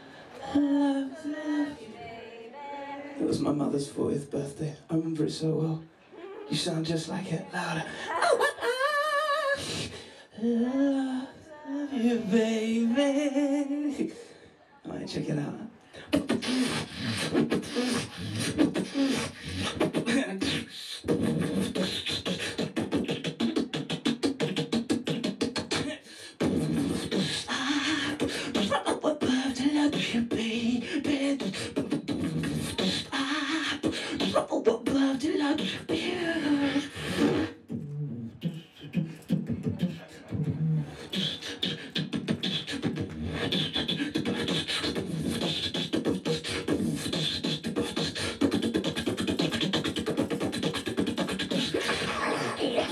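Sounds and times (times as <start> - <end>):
person beatboxing: 9.4 - 10.5, 16.0 - 52.9.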